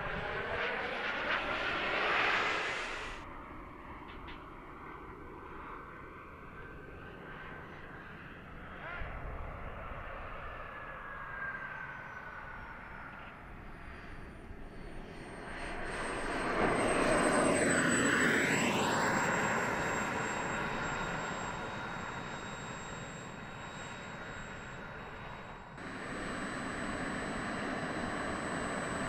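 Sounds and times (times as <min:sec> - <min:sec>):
model jet engine whining: 0:00.0 - 0:29.0.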